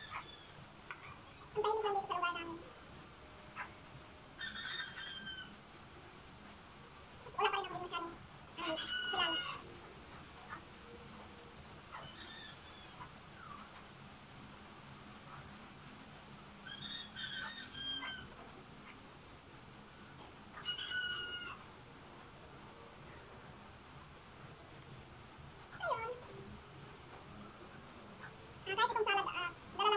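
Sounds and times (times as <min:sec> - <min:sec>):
roosters crowing: 0:04.3 - 0:05.7, 0:08.5 - 0:09.8, 0:16.6 - 0:18.4, 0:20.5 - 0:21.8.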